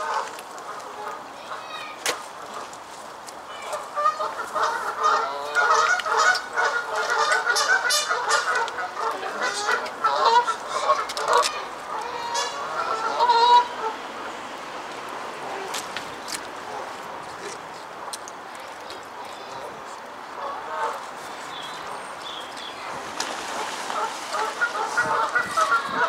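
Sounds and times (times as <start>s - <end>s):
geese honking: 3.6s - 14.0s, 20.4s - 21.8s, 23.3s - 26.0s.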